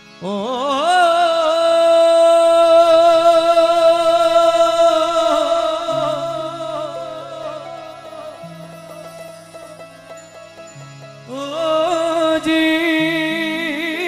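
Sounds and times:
harmonium notes: 0.0s - 14.0s
man singing long note: 0.2s - 8.8s.

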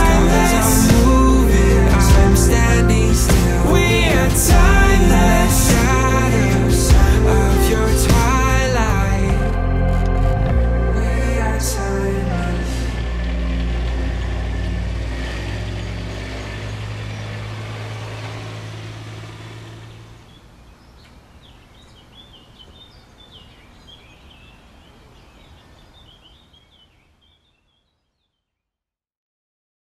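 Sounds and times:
low sustained music chord: 0.0s - 19.9s
small birds chirping: 14.9s - 28.6s.

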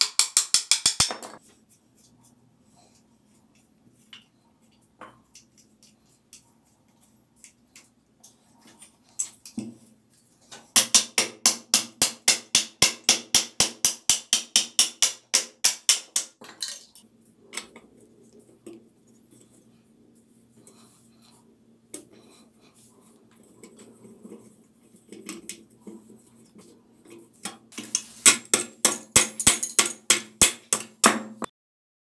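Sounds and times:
hammer striking metal: 27.8s - 31.5s.

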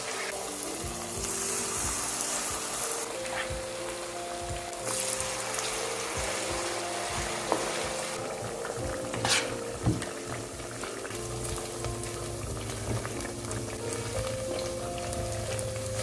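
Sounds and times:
food deep-frying in oil: 0.0s - 16.0s
metal utensil clicking in pan: 9.1s - 9.6s.

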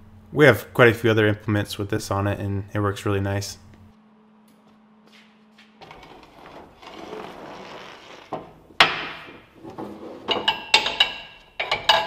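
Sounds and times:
hoses rustling and scraping: 5.1s - 8.5s.

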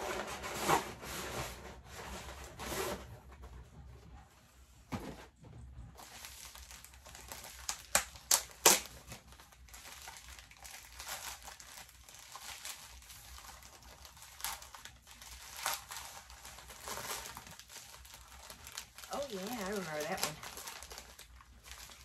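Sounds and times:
plastic mailer bag crinkling: 6.0s - 22.0s.

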